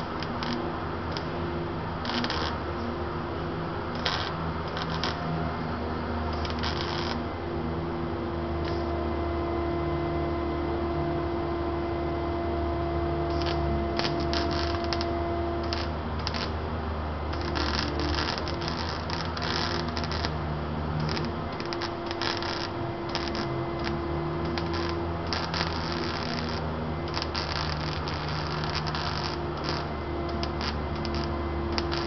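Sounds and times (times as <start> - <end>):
arc welding hissing and crackling: 0.0 - 7.3, 8.5 - 9.0, 13.1 - 32.0
steady low hum: 0.0 - 32.0.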